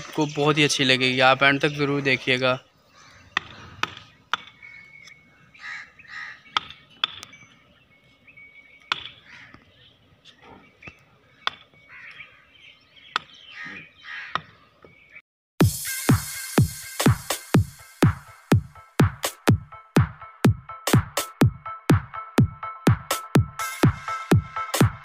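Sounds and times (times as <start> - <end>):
birds calling: 0.0 - 15.2.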